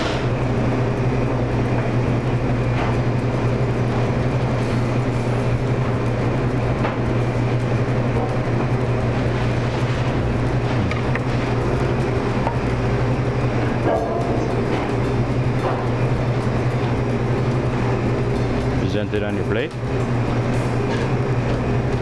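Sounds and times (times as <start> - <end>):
kitchen ventilation drone: 0.0 - 22.0.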